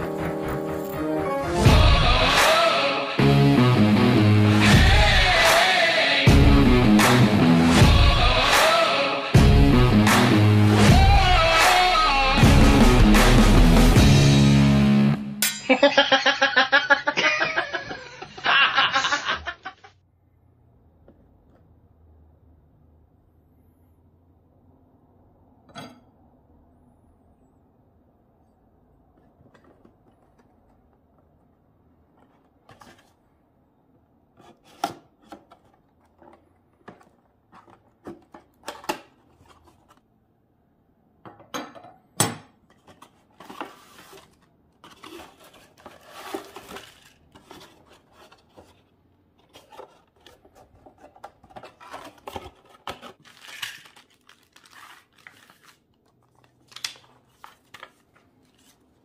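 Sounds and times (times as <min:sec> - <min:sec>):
plastic bags and paper crinkling: 0:42.9 - 0:59.0.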